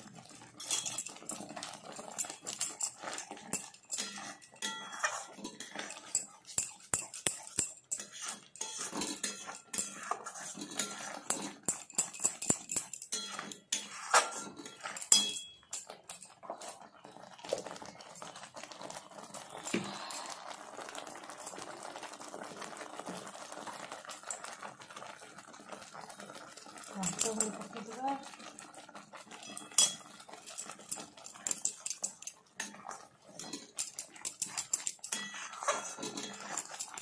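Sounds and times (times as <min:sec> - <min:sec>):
paste bubbling and sputtering: 0:00.0 - 0:37.0
spatula scraping metal pan: 0:00.5 - 0:16.9, 0:29.3 - 0:37.0.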